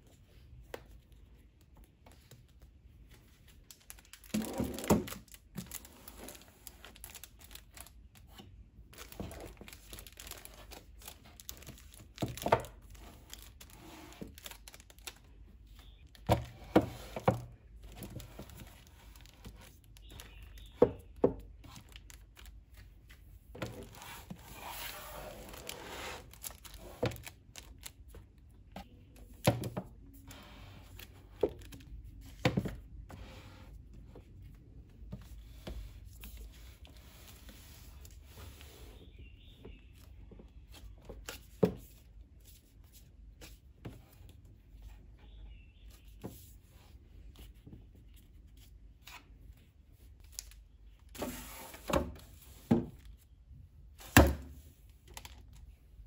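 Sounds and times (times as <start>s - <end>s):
book covers scraping along shelf: 12.8s - 14.4s, 23.6s - 27.2s, 33.1s - 34.3s, 51.1s - 52.8s.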